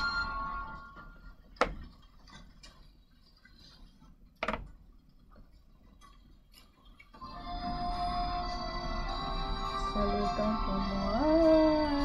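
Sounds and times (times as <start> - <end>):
background music: 0.0 - 1.5, 7.2 - 12.0.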